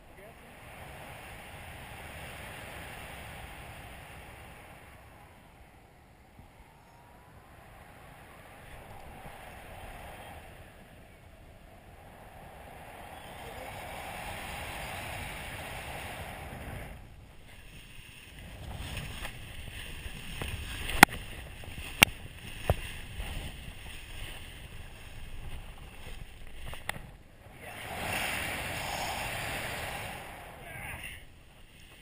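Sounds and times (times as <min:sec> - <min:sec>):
wind rushing on microphone: 0:00.0 - 0:32.0
faint clicks: 0:26.4 - 0:27.2.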